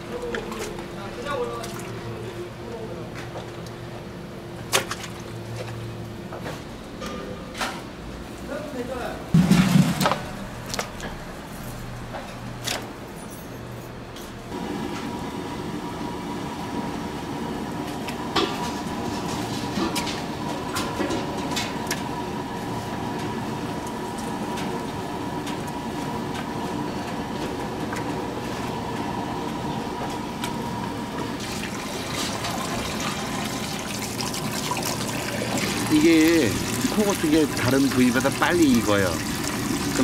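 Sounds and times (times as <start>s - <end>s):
water rushing from a hose: 31.4s - 40.0s.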